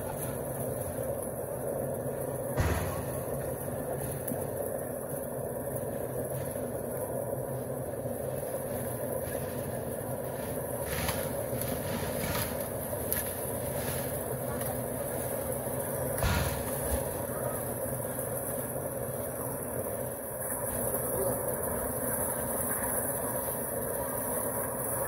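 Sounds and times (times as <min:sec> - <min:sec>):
concrete mixer engine droning: 0:00.0 - 0:25.0
shovels and buckets scraping: 0:10.8 - 0:14.2.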